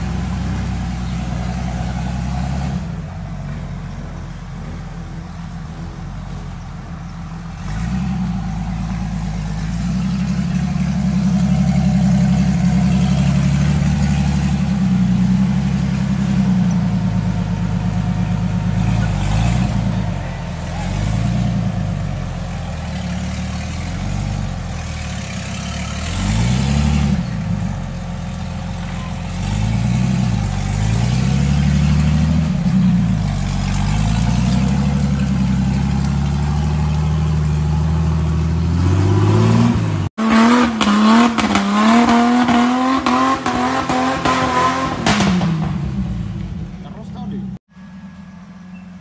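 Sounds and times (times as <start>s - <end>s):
off-road vehicle engine revving: 0.0s - 47.6s.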